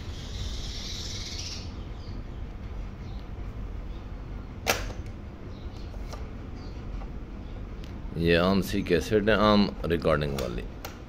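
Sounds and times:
cassette door springing open: 0:04.6 - 0:05.1.

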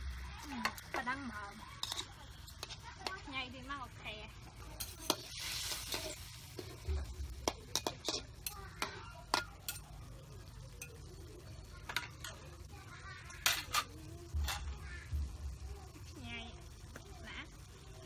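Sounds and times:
metal ladle scraping steel wok: 0:05.1 - 0:06.9.

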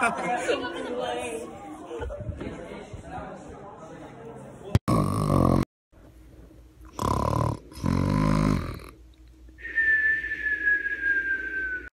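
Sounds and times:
high whistling tone falling in pitch: 0:09.6 - 0:11.9.

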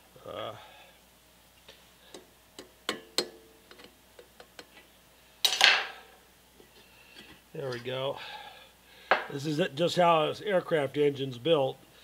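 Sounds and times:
metal parts clicking and tapping: 0:02.1 - 0:04.8.

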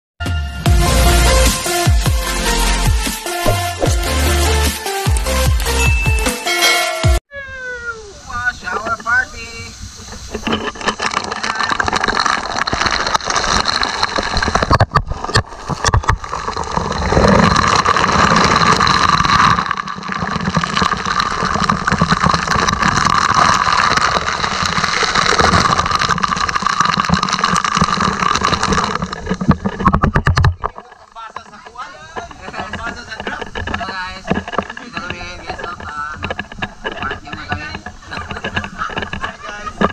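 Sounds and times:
water drops hitting microphone: 0:02.9 - 0:06.3
hose jet spraying water: 0:08.0 - 0:29.8.

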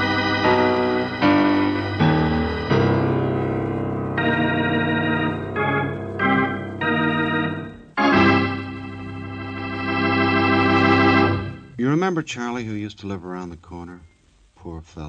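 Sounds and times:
organ chords: 0:00.0 - 0:12.0.

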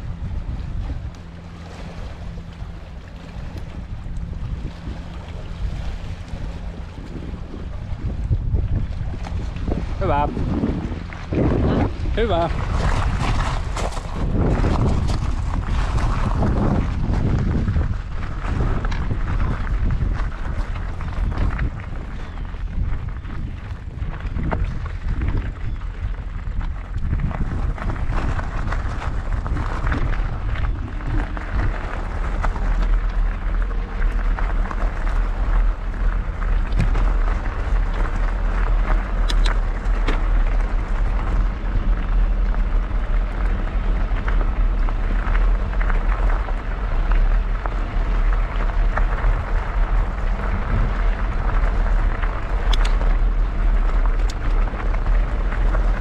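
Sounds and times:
wind buffeting microphone: 0:00.0 - 0:56.0
bike tyres crunching on gravel: 0:03.6 - 0:56.0
stones clicking: 0:52.2 - 0:53.0.

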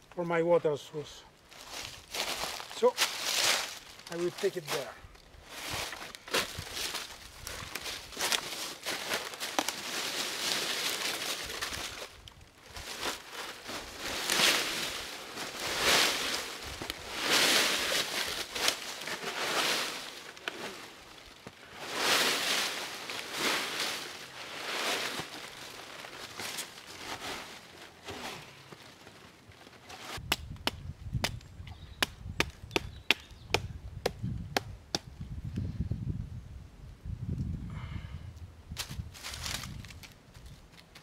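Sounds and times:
dry leaves rustling: 0:01.5 - 0:30.2, 0:38.8 - 0:40.9
hatchet chopping wooden stick: 0:30.2 - 0:31.4, 0:32.0 - 0:35.1.

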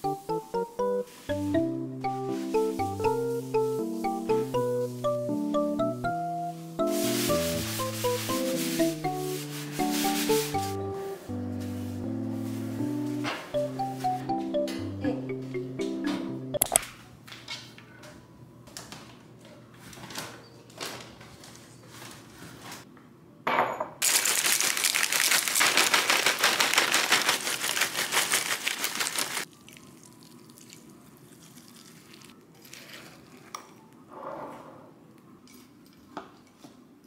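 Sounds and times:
kitchenware knocks: 0:23.5 - 0:24.0
cereal pouring into a bowl: 0:24.0 - 0:30.8.

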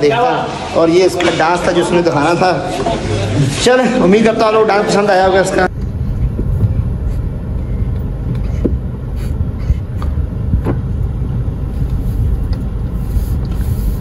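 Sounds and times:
car engine low rumble: 0:05.7 - 0:14.0.

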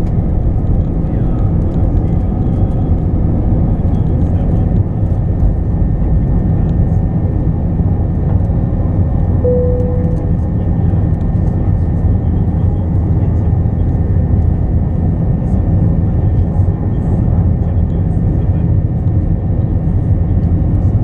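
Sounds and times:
steady tone: 0:09.4 - 0:10.9.

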